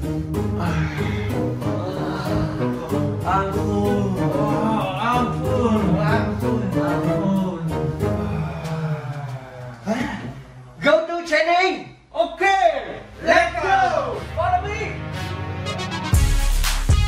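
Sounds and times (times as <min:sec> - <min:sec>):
music with singing: 0:00.0 - 0:10.3, 0:15.3 - 0:17.0.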